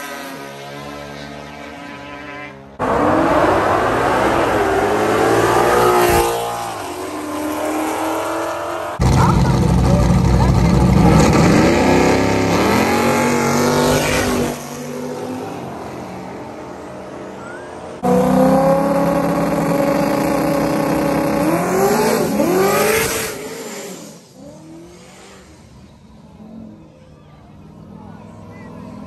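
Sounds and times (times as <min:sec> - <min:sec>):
race car engines passing: 0:00.0 - 0:29.0.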